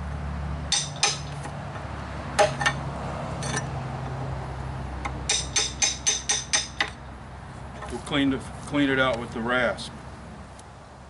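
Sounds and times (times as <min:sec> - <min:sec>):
hammer striking chisel: 0:00.7 - 0:01.5, 0:05.0 - 0:07.0.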